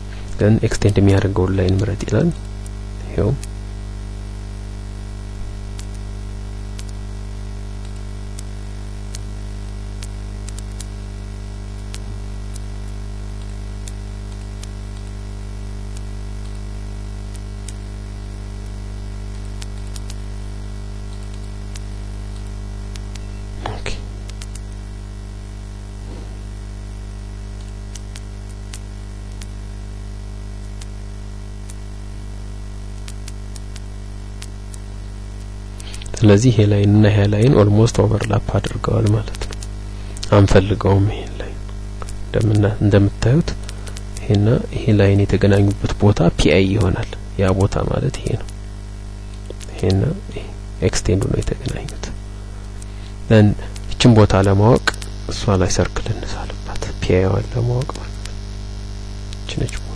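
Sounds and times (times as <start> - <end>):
electrical hum and hiss: 0.0 - 59.9
computer mouse clicks: 19.3 - 20.2, 21.1 - 24.7.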